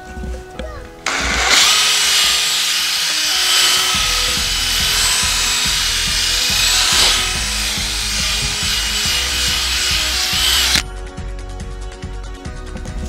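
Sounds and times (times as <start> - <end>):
cordless drill whining: 1.1 - 10.8
drill bit grinding into soil: 1.1 - 10.8.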